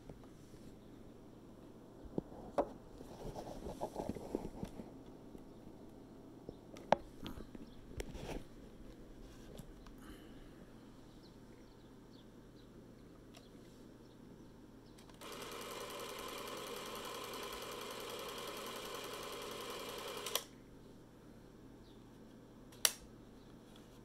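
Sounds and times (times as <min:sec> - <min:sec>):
film camera mechanical whir: 0:15.0 - 0:20.6
sharp click: 0:22.7 - 0:23.1.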